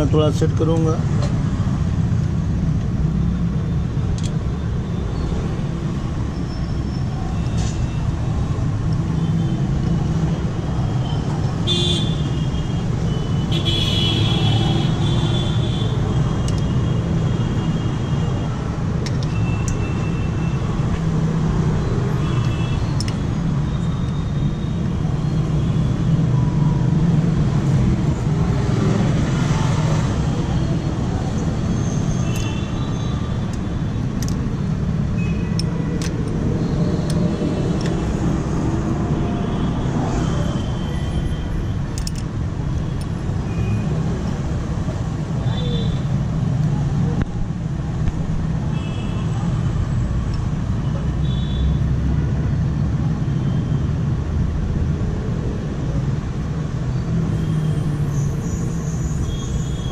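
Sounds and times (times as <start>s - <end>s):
traffic rumble: 0.0s - 59.9s
spanner clicking on metal: 33.4s - 34.6s, 35.4s - 36.4s, 41.9s - 42.3s.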